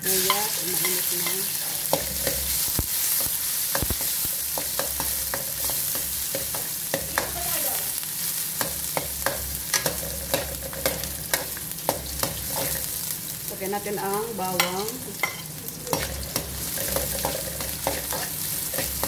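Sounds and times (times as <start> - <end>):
onions sizzling in hot oil: 0.0 - 19.0.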